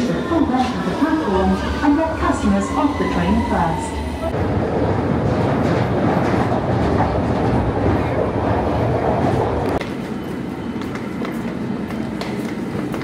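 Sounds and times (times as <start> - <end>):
train rumbling in a tunnel: 0.0 - 13.0.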